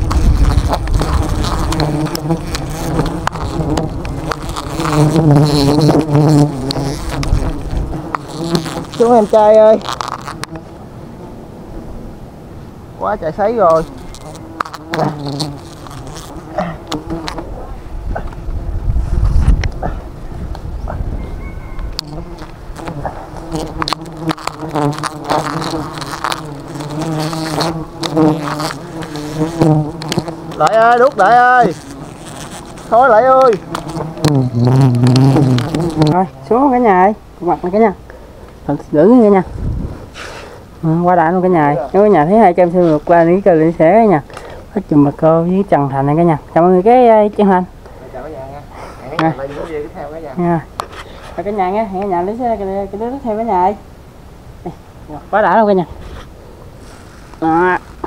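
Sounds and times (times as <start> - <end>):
bees buzzing: 0.0 - 11.5, 13.5 - 17.6, 21.8 - 37.1.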